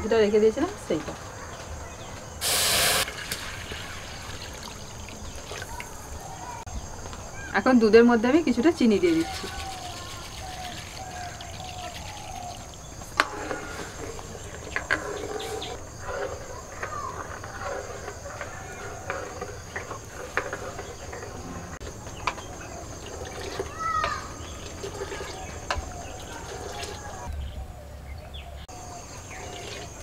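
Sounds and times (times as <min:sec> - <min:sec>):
birds calling: 0:00.0 - 0:30.0
crickets droning: 0:00.0 - 0:30.0
ladle stirring and clinking in pan: 0:09.0 - 0:27.3.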